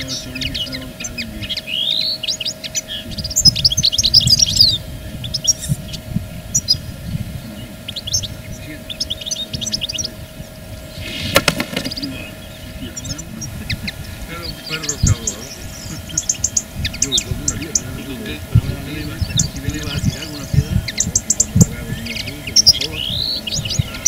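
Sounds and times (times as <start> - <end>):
faint steady hum: 0.0 - 24.0
songbirds chirping and twittering: 0.0 - 24.0.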